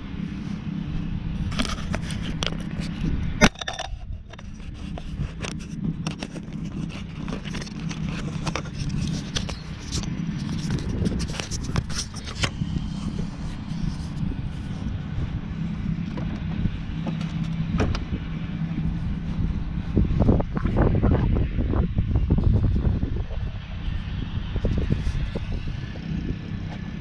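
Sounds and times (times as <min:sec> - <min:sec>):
lawn mower engine running: 0:00.0 - 0:27.0
sharp clicks and ticks: 0:01.5 - 0:13.2.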